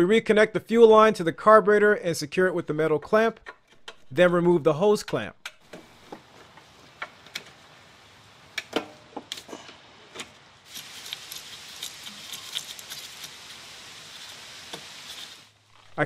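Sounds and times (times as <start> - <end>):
faint steady hiss: 4.1 - 16.0.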